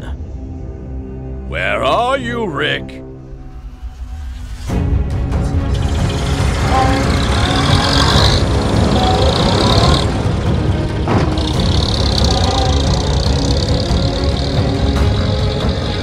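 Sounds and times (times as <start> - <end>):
cartoon car engines running: 5.7 - 16.0.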